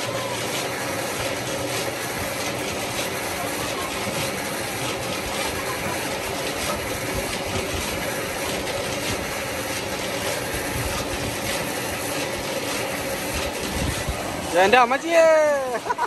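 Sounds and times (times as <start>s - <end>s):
electric water pump humming: 0.0s - 16.0s.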